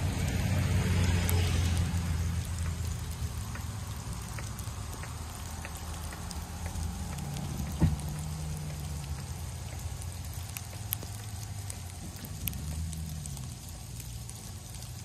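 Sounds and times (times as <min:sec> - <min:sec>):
truck engine droning: 0:00.0 - 0:15.0
sleet ticking: 0:02.4 - 0:14.9
sharp thump: 0:07.7 - 0:08.0.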